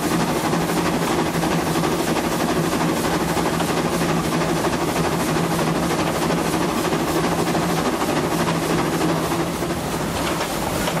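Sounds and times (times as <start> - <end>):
steam train running: 0.0 - 11.0.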